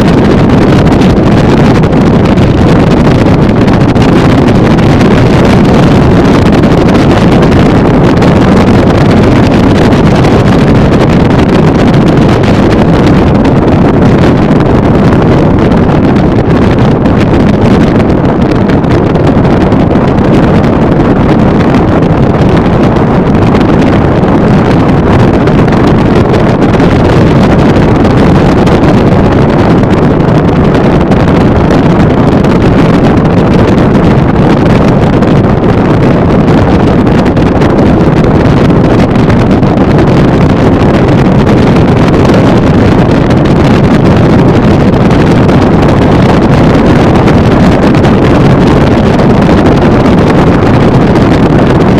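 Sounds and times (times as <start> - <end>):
wind noise on microphone: 0.0 - 51.9.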